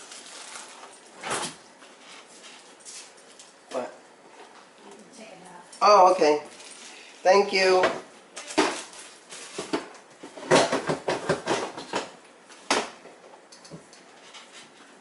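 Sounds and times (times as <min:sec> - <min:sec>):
containers knocking and clinking: 0:09.6 - 0:12.1.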